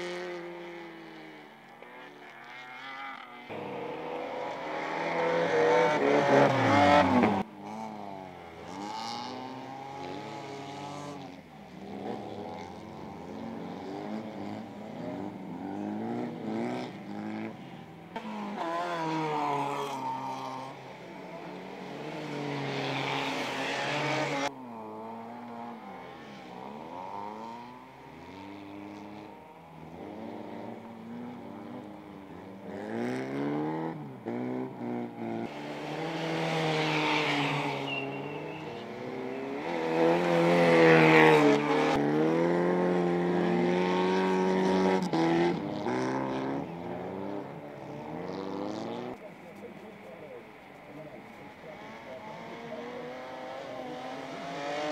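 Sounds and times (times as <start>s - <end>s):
race car engines revving: 0.0s - 54.9s.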